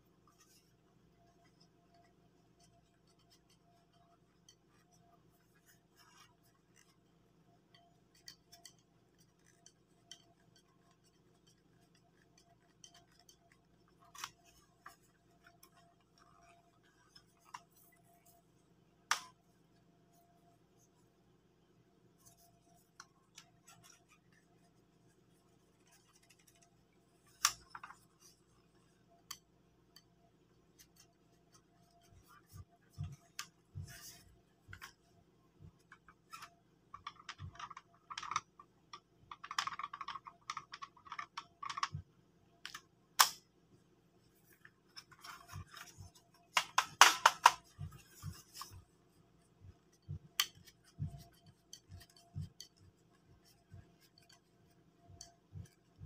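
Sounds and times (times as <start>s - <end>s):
plastic parts clicking and rattling: 7.7s - 18.3s, 25.4s - 29.5s, 35.7s - 42.0s, 42.6s - 43.4s, 44.4s - 48.9s, 49.7s - 56.0s.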